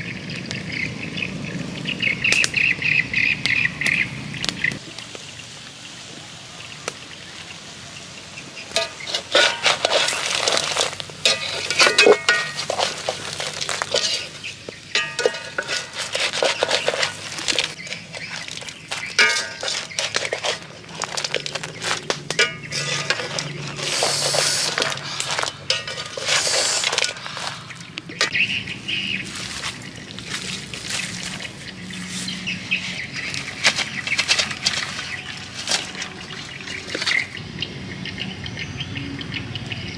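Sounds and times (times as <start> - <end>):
ladle scraping metal wok: 8.7 - 28.3
crab shells clattering: 8.8 - 28.4, 33.3 - 37.3.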